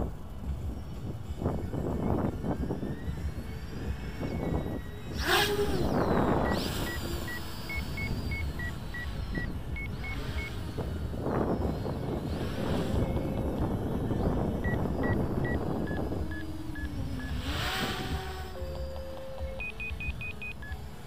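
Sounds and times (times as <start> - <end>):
quadcopter propellers whining: 0.0 - 21.0
wind buffeting microphone: 0.0 - 21.0
two-tone electronic beeps: 5.8 - 10.6, 14.6 - 17.4, 18.5 - 20.9.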